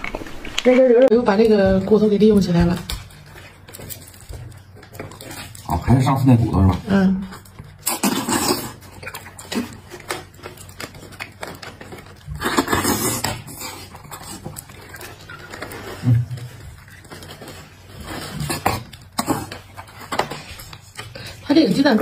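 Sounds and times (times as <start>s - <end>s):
slurping marrow from bone: 7.8s - 9.8s, 12.3s - 16.5s.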